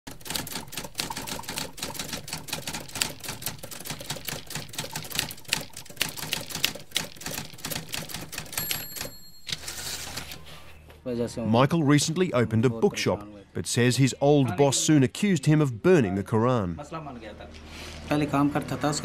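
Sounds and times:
typewriter keys clacking: 0:00.1 - 0:10.4
typewriter carriage bell ring: 0:07.9 - 0:10.4.

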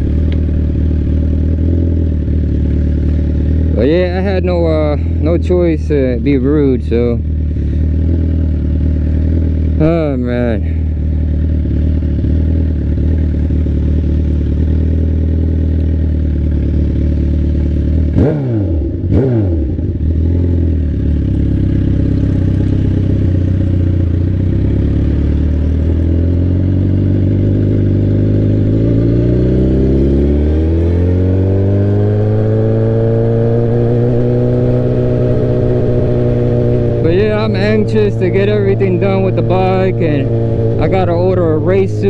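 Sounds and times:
loud sport bike exhaust revving: 0:00.0 - 0:42.0.

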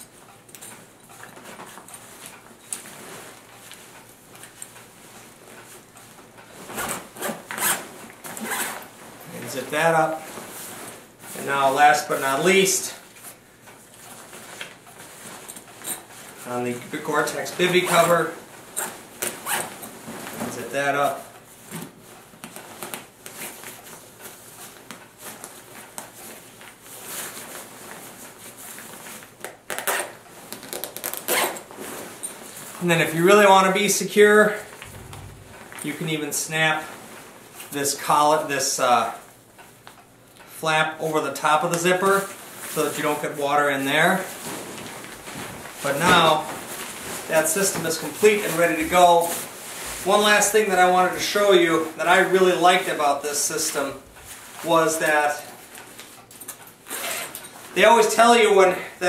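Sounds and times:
nylon fabric rustling: 0:00.7 - 0:39.3, 0:41.0 - 0:59.0
zipper being pulled shut: 0:06.8 - 0:08.9, 0:29.7 - 0:31.6, 0:56.8 - 0:57.4.

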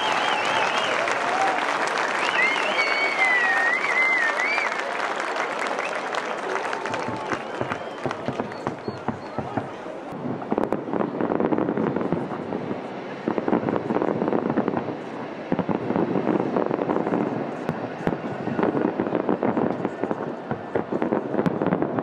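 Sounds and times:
fireworks popping and banging: 0:06.5 - 0:22.0.

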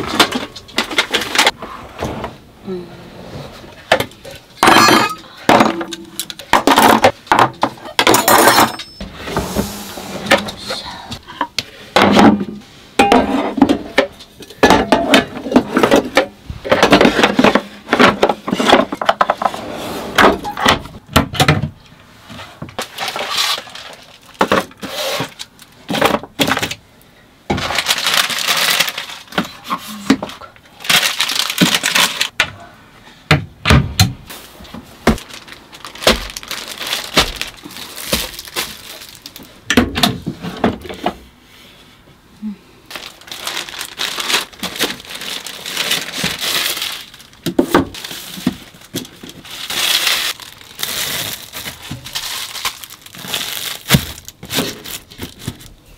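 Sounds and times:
rustling: 0:42.9 - 0:55.8.

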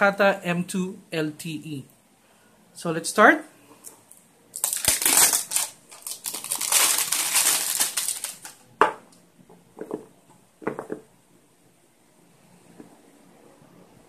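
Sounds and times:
plastic wrap crinkling: 0:04.5 - 0:08.7.

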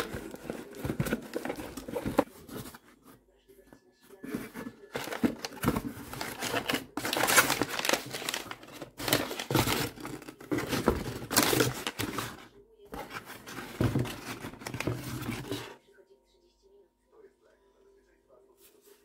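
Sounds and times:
packing paper crinkling: 0:00.0 - 0:02.8, 0:04.2 - 0:12.4.

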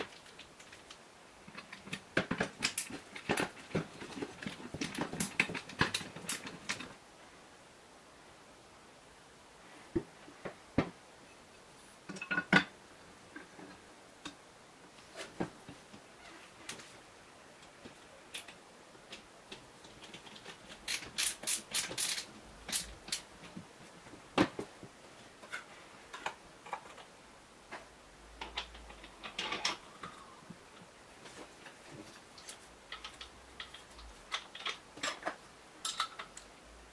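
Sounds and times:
metal and plastic clicks and knocks: 0:01.5 - 0:07.0.

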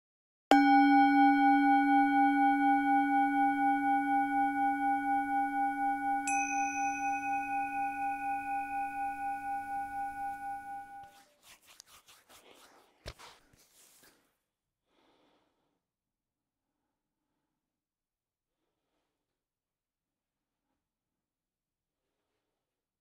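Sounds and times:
singing bowl ringing: 0:00.5 - 0:11.0
higher-pitched bowl strike: 0:00.5 - 0:11.1.

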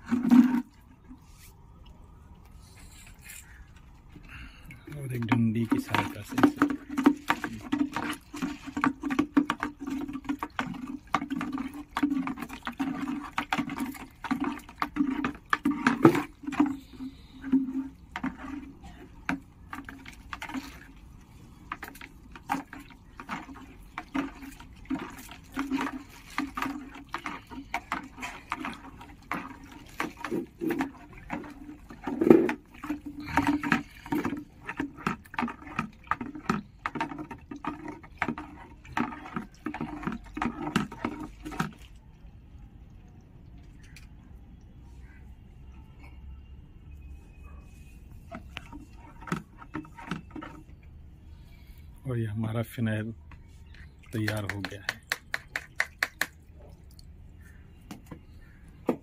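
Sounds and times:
hose water running into bucket: 0:00.0 - 0:01.4, 0:04.7 - 0:42.2, 0:48.1 - 0:51.1, 0:53.6 - 0:57.0
stick knocking and sloshing: 0:00.0 - 0:01.6, 0:04.8 - 0:42.0, 0:48.1 - 0:50.9, 0:52.6 - 0:57.1.

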